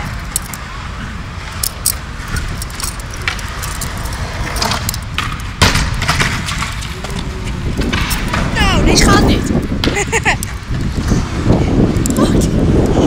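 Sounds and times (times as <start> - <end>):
steady low rumble: 0.0 - 13.0
metal handcuffs clicking: 0.1 - 0.6, 1.6 - 5.1.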